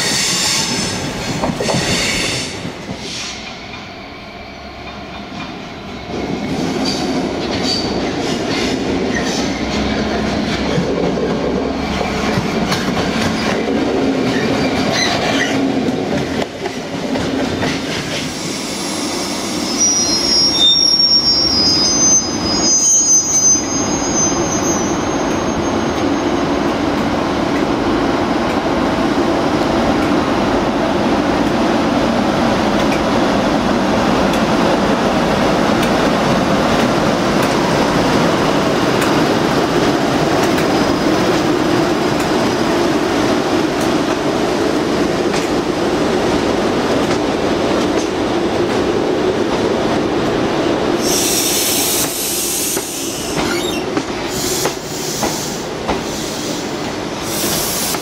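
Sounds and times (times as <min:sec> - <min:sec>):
train wheels squealing: 0:00.0 - 0:04.6, 0:14.3 - 0:15.6, 0:18.3 - 0:26.6, 0:51.0 - 0:56.7
wheels rumbling on rail: 0:00.0 - 0:58.0.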